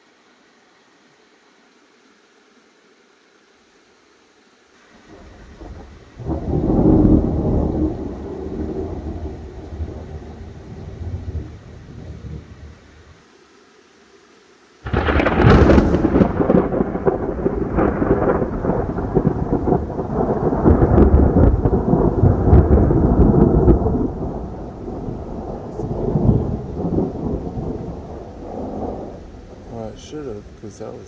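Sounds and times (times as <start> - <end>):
close thunderclap: 5.1 - 12.6, 14.8 - 31.0
rolling thunder rumble: 5.1 - 12.9, 14.8 - 31.0.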